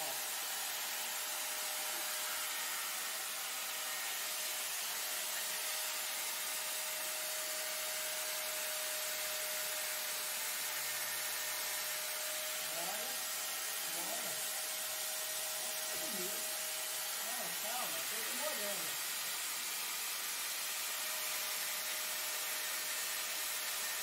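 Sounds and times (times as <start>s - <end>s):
disc cutter whining: 0.0s - 19.0s.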